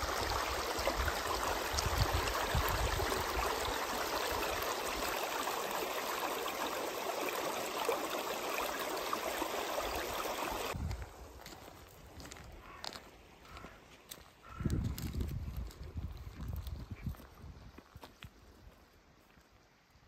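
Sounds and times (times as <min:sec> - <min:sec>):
stream running over stones: 0:00.0 - 0:13.4.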